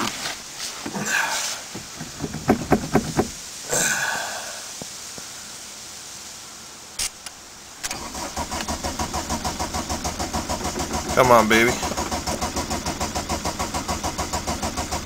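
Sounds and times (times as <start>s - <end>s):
short breathy hiss: 0.0s - 2.2s, 3.0s - 15.0s
diesel engine starter cranking: 7.0s - 15.0s
sharp clicks: 7.0s - 15.0s.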